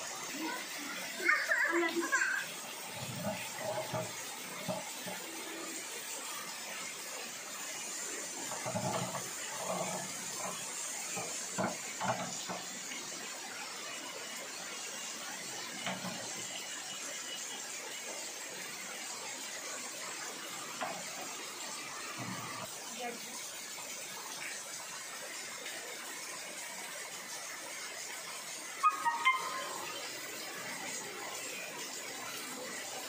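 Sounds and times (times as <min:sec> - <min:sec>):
heavy rain: 0:00.0 - 0:33.0
sharp rain taps: 0:01.2 - 0:13.4.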